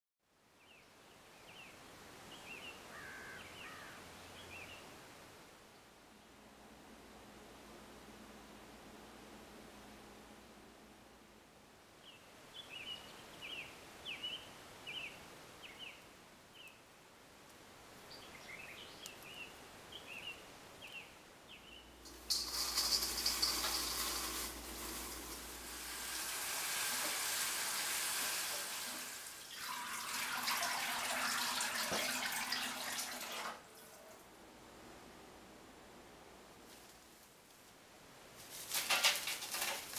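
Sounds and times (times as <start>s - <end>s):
water running into metal sink: 22.0s - 33.6s.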